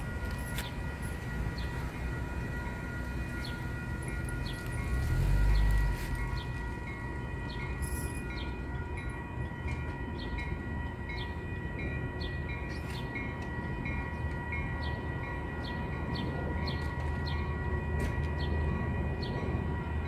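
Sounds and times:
railroad warning bell ringing: 0:00.0 - 0:20.0
train rumbling: 0:00.0 - 0:20.0.

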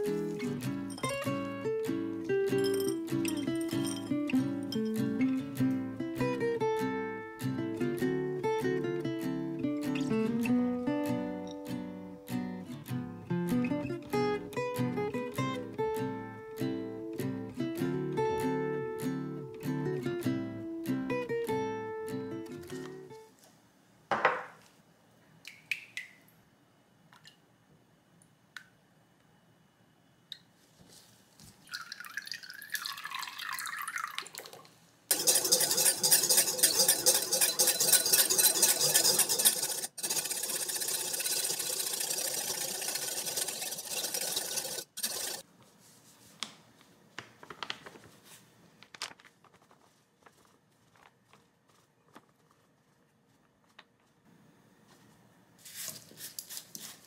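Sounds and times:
wire whisk scraping glass bowl: 0:02.6 - 0:04.9, 0:35.1 - 0:45.4
liquid pouring into bowl: 0:31.6 - 0:39.5.

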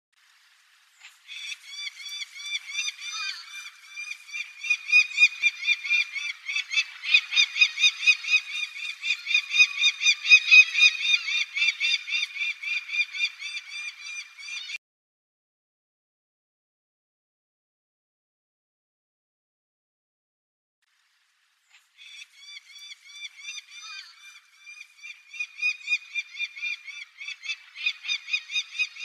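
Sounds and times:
falcon calling: 0:01.3 - 0:14.8, 0:22.0 - 0:29.0.

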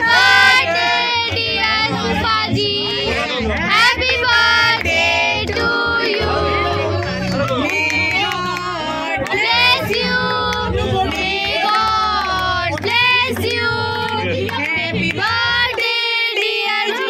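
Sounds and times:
steady bass: 0:00.0 - 0:16.9
woman singing: 0:07.7 - 0:17.0.

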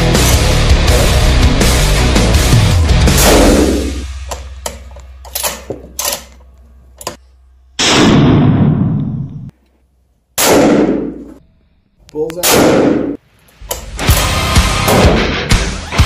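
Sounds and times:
rifle shots ringing: 0:12.4 - 0:13.2.

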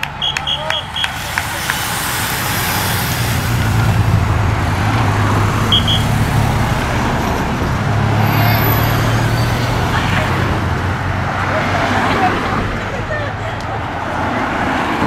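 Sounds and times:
vehicles passing close: 0:00.0 - 0:15.0
short high beeps: 0:05.7 - 0:06.1.

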